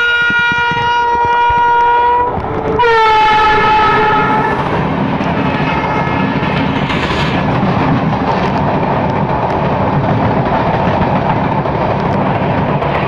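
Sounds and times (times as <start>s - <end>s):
train horn blasts: 0.0s - 4.7s, 5.5s - 6.4s
passing train rush and clatter: 0.0s - 13.0s.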